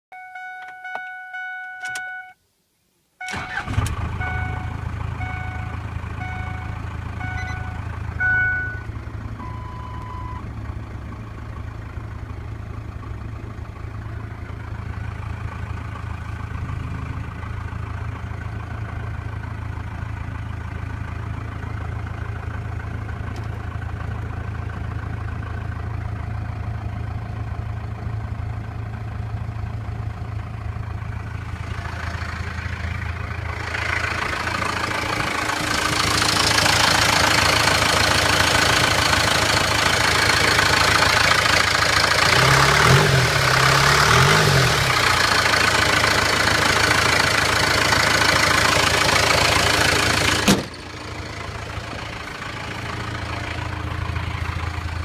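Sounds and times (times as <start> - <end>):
dashboard warning chime beeping: 0.1 - 2.4, 3.2 - 10.5
diesel engine starting and idling: 3.2 - 55.0.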